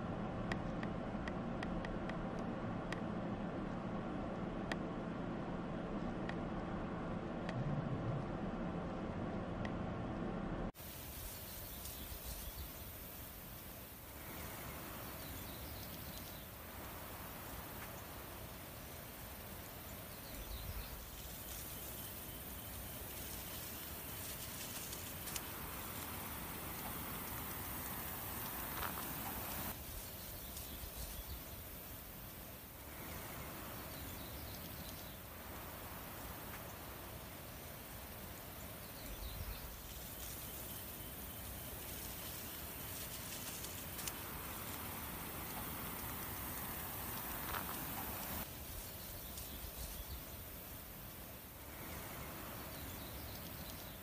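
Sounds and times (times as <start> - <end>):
low rumble: 0.0 - 10.8
steady outdoor hiss: 0.0 - 54.0
brief low rumble: 5.8 - 10.7.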